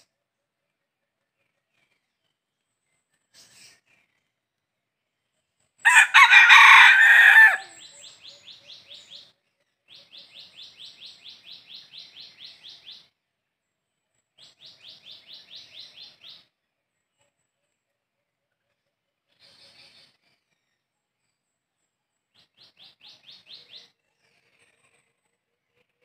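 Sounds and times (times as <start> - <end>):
rooster crowing: 5.8 - 7.8.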